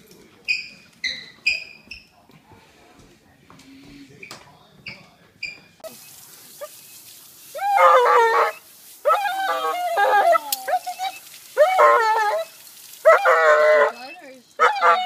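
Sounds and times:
dog howling: 7.5s - 15.0s.

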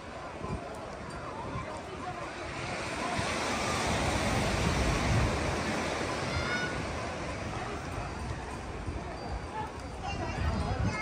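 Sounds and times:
sea surf breaking on beach: 1.5s - 8.9s.

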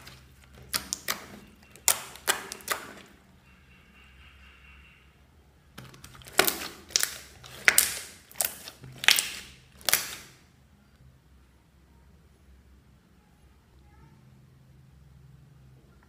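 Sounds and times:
slime squeezed by hands: 0.0s - 3.2s, 5.8s - 10.4s.

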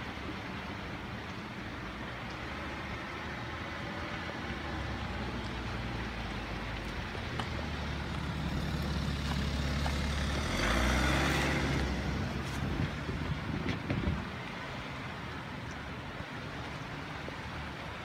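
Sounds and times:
vehicle driving past: 7.6s - 13.5s.

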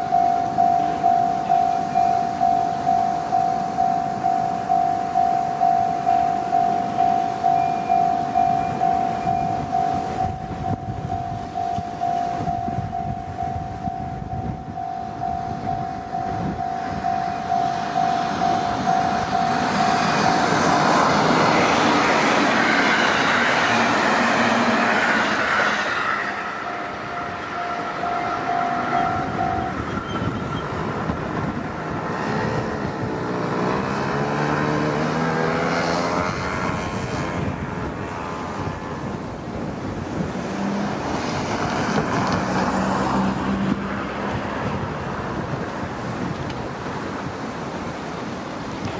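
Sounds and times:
level crossing alarm ringing: 0.0s - 31.6s
wavering whine: 0.0s - 39.2s
train passing: 0.0s - 48.9s.

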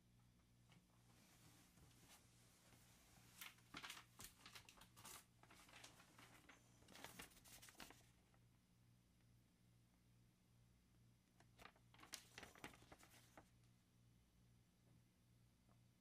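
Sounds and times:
paper tearing and crinkling: 3.4s - 8.1s, 11.6s - 13.4s.

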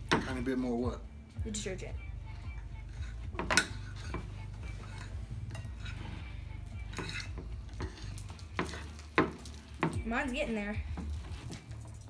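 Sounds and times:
utensils clinking against bowls: 2.8s - 6.2s, 6.8s - 10.0s
stirring sticky slime: 2.8s - 12.0s.

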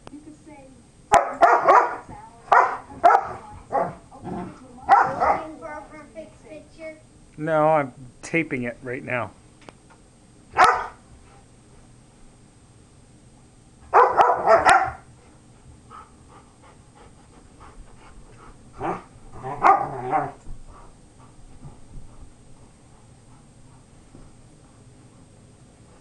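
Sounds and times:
dogs barking: 1.1s - 4.0s, 4.9s - 5.6s, 10.5s - 11.0s, 13.9s - 15.1s, 18.8s - 20.4s.

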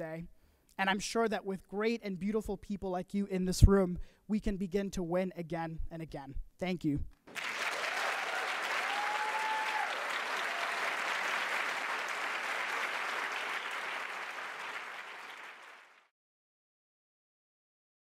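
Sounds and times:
large audience applauding: 7.3s - 16.1s.

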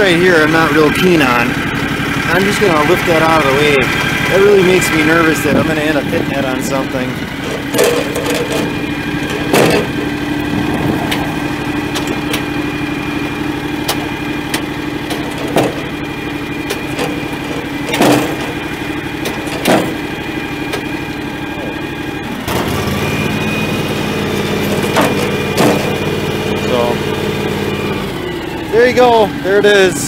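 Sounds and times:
diesel engine idling: 0.0s - 30.0s
sharp knocks: 13.8s - 15.9s, 16.6s - 18.6s, 19.2s - 20.1s, 24.7s - 26.1s.

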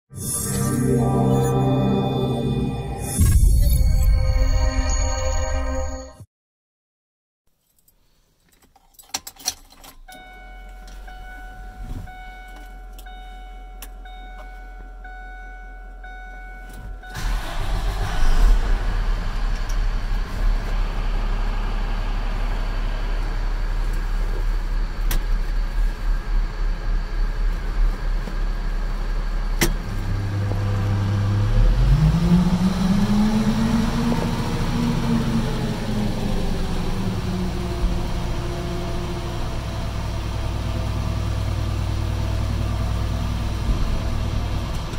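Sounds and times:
diesel truck engine starting and idling: 9.4s - 44.9s
electronic warning tone: 10.1s - 17.4s.

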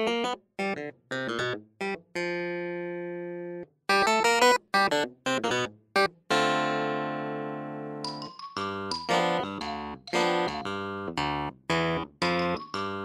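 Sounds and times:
background music short notes: 8.0s - 13.0s.

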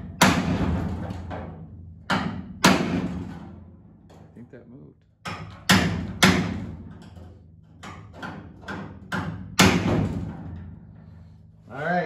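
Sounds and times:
hammer striking steel punch: 0.0s - 0.9s, 2.0s - 3.3s, 5.2s - 6.8s, 8.8s - 10.2s.

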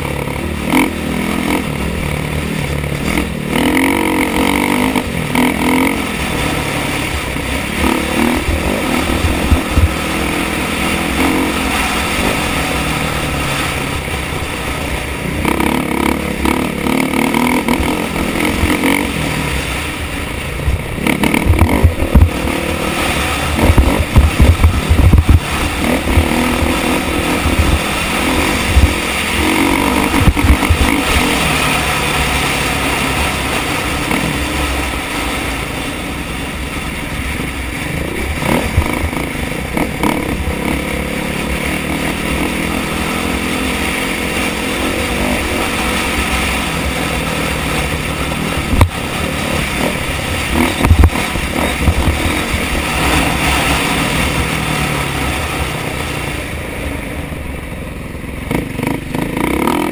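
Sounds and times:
motorcycle engine revving: 0.0s - 59.9s
wind rumble on microphone: 6.3s - 11.2s, 17.6s - 35.0s, 46.3s - 55.5s.

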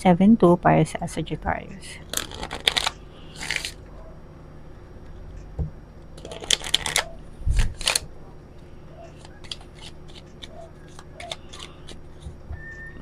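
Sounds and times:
cards being shuffled: 2.1s - 3.8s, 6.2s - 8.1s, 9.1s - 12.3s.

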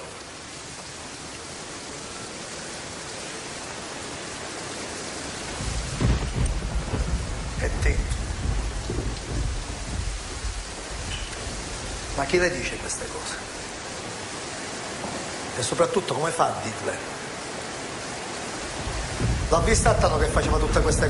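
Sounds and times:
steady rain hiss: 0.0s - 21.0s
thunder rumbling: 5.2s - 14.4s, 18.5s - 21.0s.

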